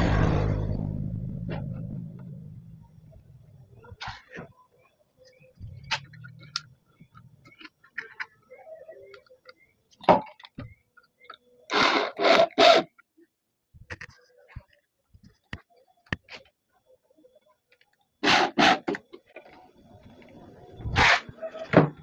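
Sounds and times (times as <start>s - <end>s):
short loud noises: 0.0s - 2.1s.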